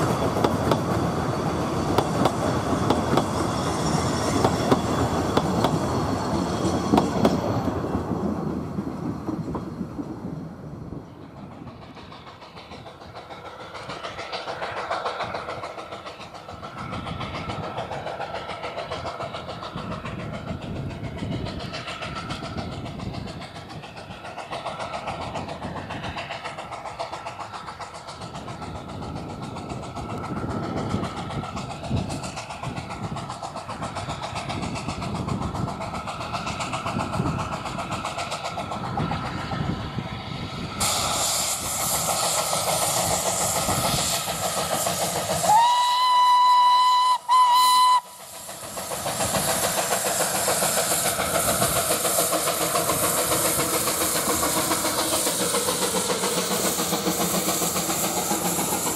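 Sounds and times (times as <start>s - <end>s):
hiss of steam: 0.0s - 10.5s, 11.1s - 58.9s
steam locomotive exhaust beats: 0.0s - 58.9s
steam whistle blasts: 45.5s - 48.3s.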